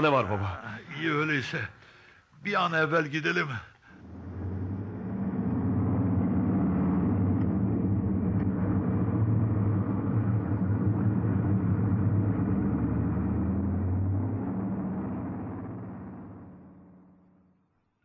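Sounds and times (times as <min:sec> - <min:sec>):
truck engine rumbling: 0:04.0 - 0:17.7.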